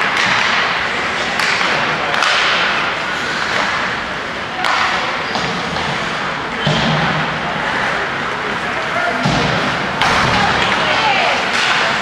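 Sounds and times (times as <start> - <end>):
hockey sticks and puck cracking: 0.0 - 12.0
spectators chatting and calling: 2.8 - 12.0
hall noise: 7.5 - 12.0.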